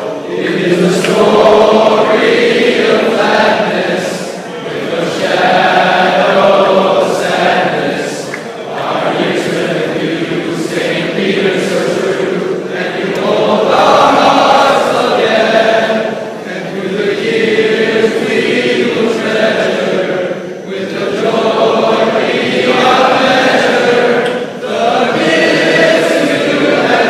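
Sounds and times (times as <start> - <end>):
crowd singing together: 0.0 - 27.0.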